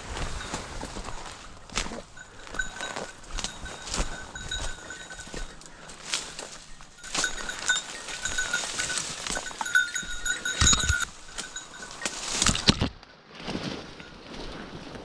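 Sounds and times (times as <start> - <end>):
branches crackling and swishing: 0.0 - 15.0
small bell jangling: 1.9 - 12.6.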